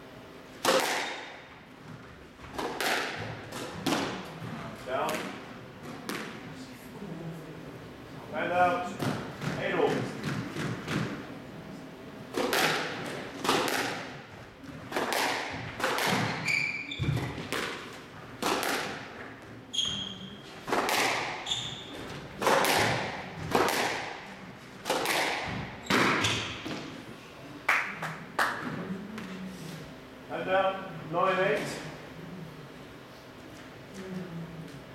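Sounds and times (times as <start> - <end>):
squash ball hitting rackets and walls: 0.6 - 6.4, 8.9 - 11.3, 12.3 - 27.0
shoes squeaking on wooden floor: 16.2 - 17.4, 19.7 - 20.6, 21.4 - 22.2.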